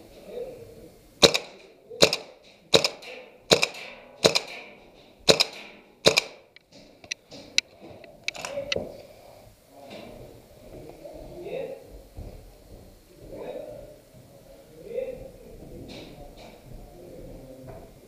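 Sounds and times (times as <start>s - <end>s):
airsoft gun shots: 1.2s - 6.5s.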